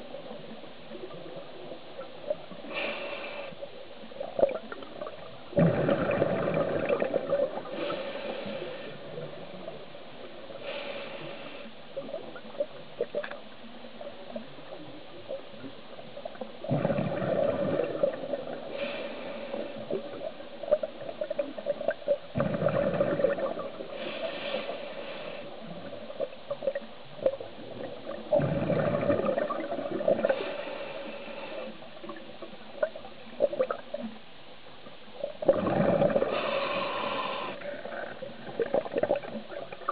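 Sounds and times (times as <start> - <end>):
regulator inhaling hiss: 2.6 - 3.8, 7.6 - 9.2, 10.5 - 11.9, 18.6 - 20.2, 23.8 - 25.8, 30.2 - 32.0, 36.2 - 37.9
exhaled bubbles gurgling: 4.2 - 10.9, 11.5 - 34.2, 35.2 - 39.9.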